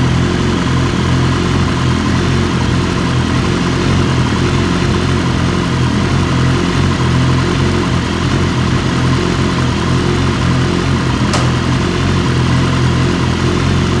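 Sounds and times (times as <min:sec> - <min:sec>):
motorcycle engine idling: 0:00.0 - 0:14.0
short click: 0:11.3 - 0:11.6.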